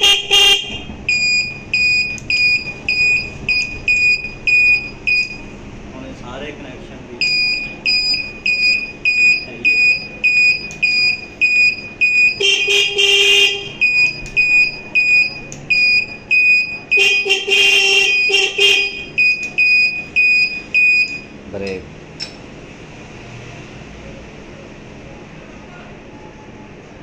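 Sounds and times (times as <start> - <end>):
motorcycle horn: 0.0 - 1.0, 12.4 - 13.9, 16.9 - 19.2
turn-signal buzzer beeping: 0.1 - 5.6, 7.2 - 12.9, 13.7 - 21.3.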